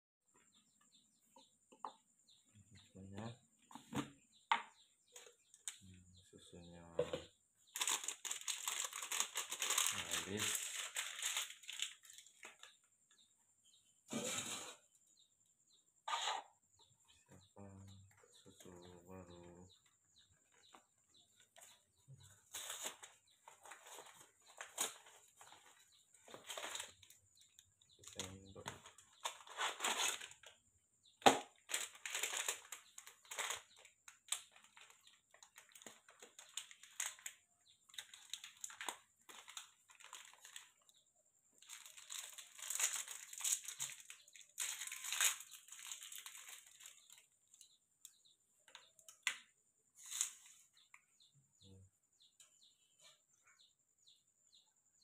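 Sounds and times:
crinkling and rustling packaging: 0:07.0 - 0:13.0, 0:20.4 - 0:30.6, 0:31.2 - 0:41.0, 0:41.6 - 0:51.0.

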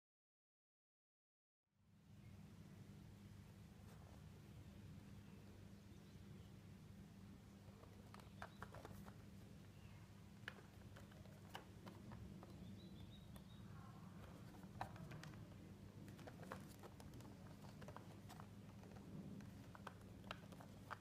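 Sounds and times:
low steady hum: 0:01.8 - 0:21.0
fingers tapping a cardboard box: 0:07.9 - 0:09.2, 0:14.2 - 0:21.0.

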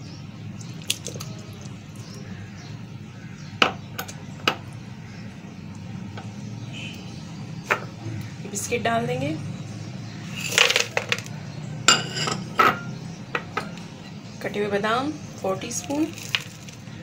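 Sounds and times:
utensils clinking against a bowl: 0:10.3 - 0:11.3, 0:11.9 - 0:13.8, 0:15.8 - 0:16.8.

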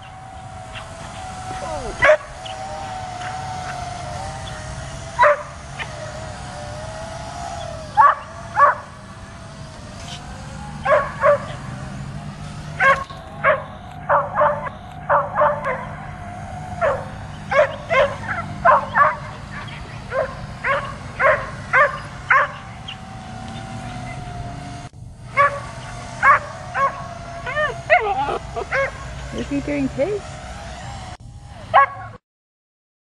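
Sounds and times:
drone motors whining: 0:00.0 - 0:32.2
dog barking: 0:02.0 - 0:02.3, 0:05.2 - 0:05.5, 0:08.0 - 0:08.8, 0:10.8 - 0:11.6, 0:12.8 - 0:15.9, 0:16.8 - 0:19.3, 0:20.1 - 0:22.6, 0:25.4 - 0:29.0, 0:31.7 - 0:32.2.

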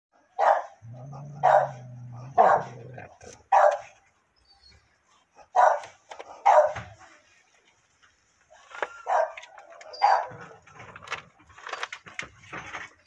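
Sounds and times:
dog barking: 0:00.2 - 0:04.0, 0:05.4 - 0:07.0, 0:09.0 - 0:10.5
dog growling: 0:00.8 - 0:03.5.

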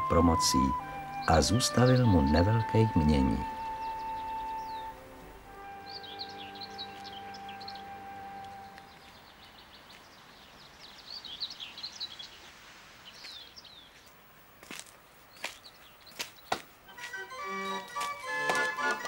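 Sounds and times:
music: 0:00.0 - 0:09.0, 0:16.9 - 0:19.0
small birds chirping: 0:00.0 - 0:19.0.

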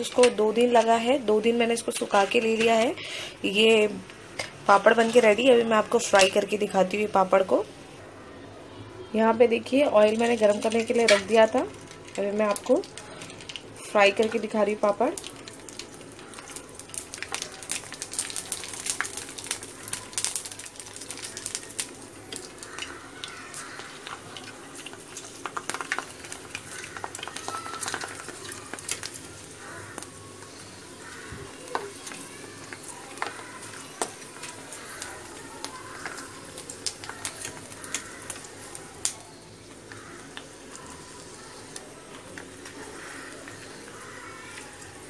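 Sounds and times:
food sizzling in hot oil: 0:00.0 - 0:08.0, 0:09.5 - 0:45.0
crackles and pops in oil: 0:10.1 - 0:45.0.

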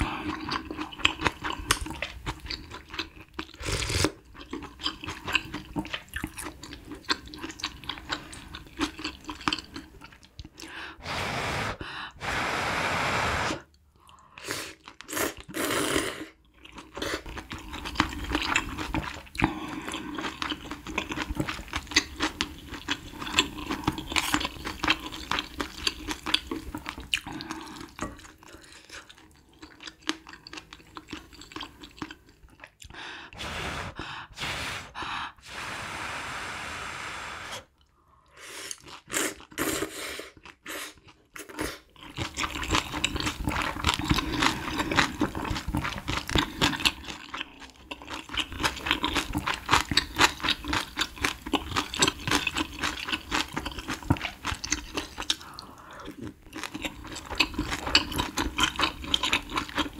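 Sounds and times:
wet chewing of noodles: 0:00.0 - 0:36.3, 0:37.6 - 0:59.9
steady rushing sound: 0:33.4 - 0:37.6.

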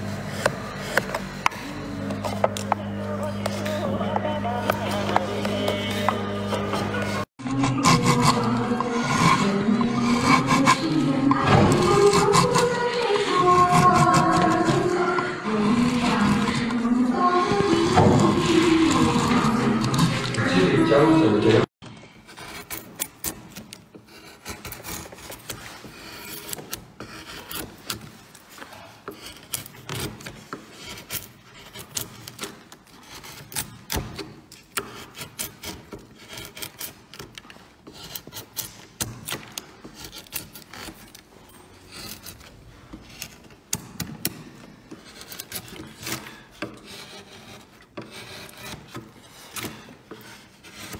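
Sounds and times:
chisels scraping into wood: 0:00.0 - 0:16.8, 0:22.2 - 0:50.9.

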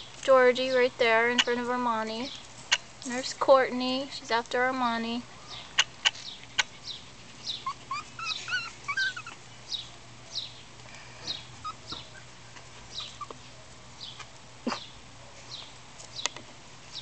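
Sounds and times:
puppies whimpering and squeaking: 0:05.5 - 0:09.6, 0:11.3 - 0:13.5.

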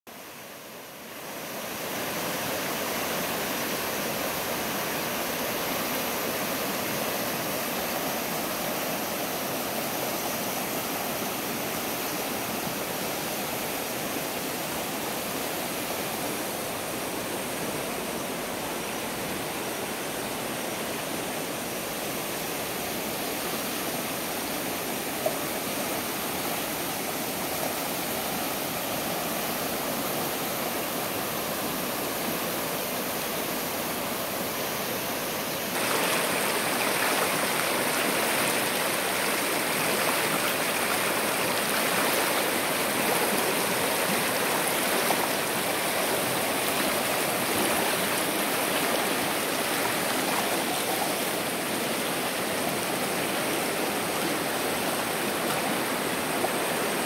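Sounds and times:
river water rushing over rocks: 0:00.1 - 0:57.0.

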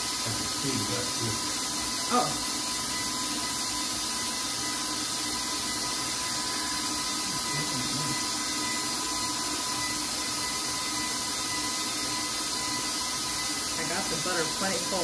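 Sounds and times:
stand mixer motor whine: 0:00.0 - 0:15.0.

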